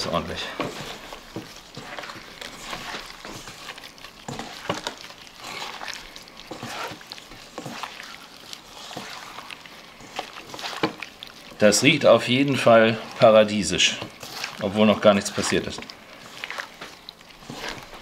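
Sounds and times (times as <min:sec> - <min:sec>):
wet squishing and slapping of meat: 0:00.0 - 0:18.0.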